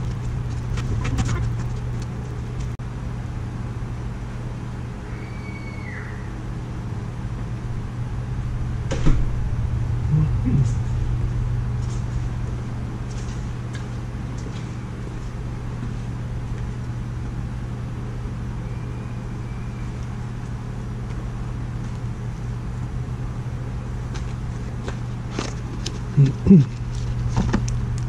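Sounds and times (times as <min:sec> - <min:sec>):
gas burner rumble and hiss: 0:06.4 - 0:24.6.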